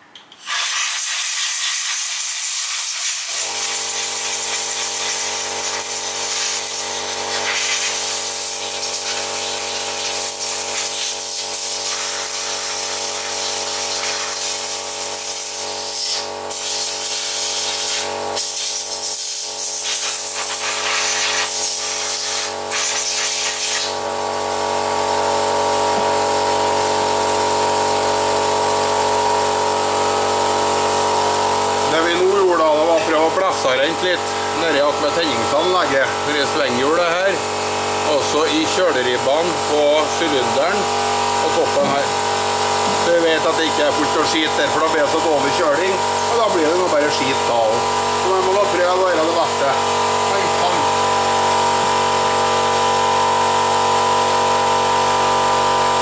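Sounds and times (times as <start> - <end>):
air compressor motor running: 0.0 - 56.0
compressed air hissing from blow gun: 0.4 - 24.0.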